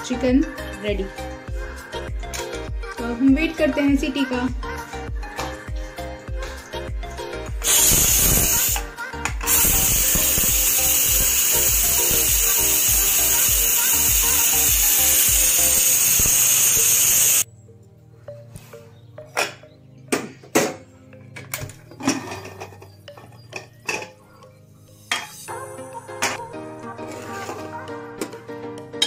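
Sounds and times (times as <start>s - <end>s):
pressure cooker steam hiss: 7.6s - 17.4s.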